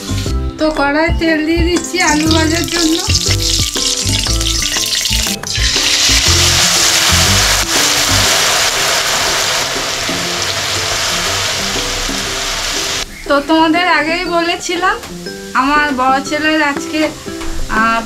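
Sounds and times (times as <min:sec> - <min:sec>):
oil sizzling: 0:00.0 - 0:00.5, 0:01.8 - 0:13.2
background music: 0:00.0 - 0:18.0.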